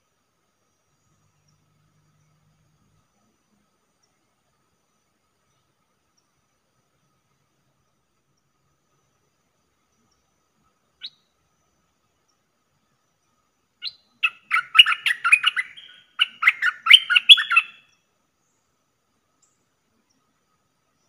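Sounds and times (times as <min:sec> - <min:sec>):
bulbul singing: 0:13.8 - 0:18.0.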